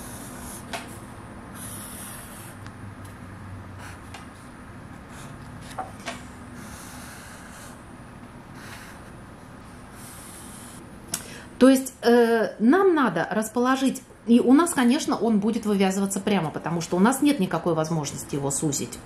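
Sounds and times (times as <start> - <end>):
marker rubbing on paper: 0.0 - 0.9, 1.6 - 2.6, 6.6 - 7.8, 10.0 - 10.8.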